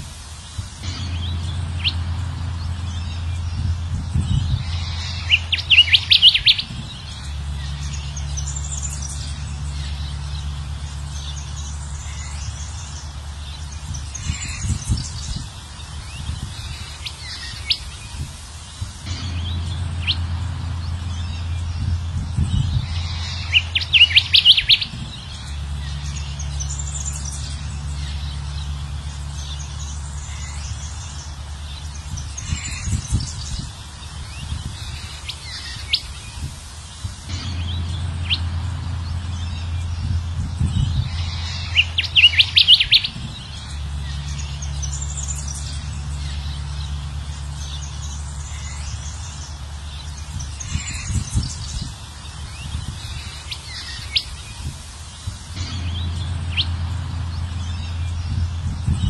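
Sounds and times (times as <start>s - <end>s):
burst of rapid bird notes: 0.0s - 59.0s
recorded bird song chirps: 0.0s - 59.0s
steady low hum: 0.0s - 59.0s.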